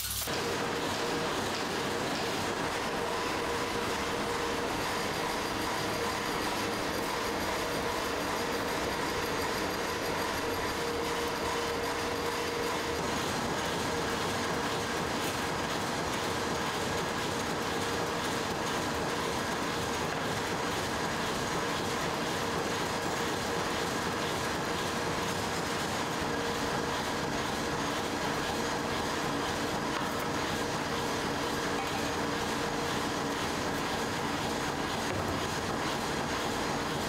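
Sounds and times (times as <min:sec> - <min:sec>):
machines mechanical clatter: 0:00.0 - 0:23.2
constant machine hum: 0:00.0 - 0:37.0.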